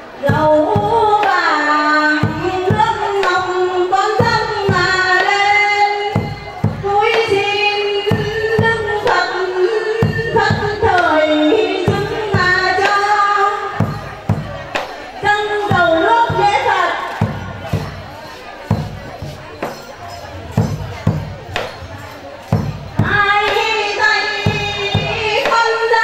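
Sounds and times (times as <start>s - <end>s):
woman singing a chant: 0.1s - 17.8s, 23.0s - 26.0s
steady percussion beat: 2.2s - 26.0s.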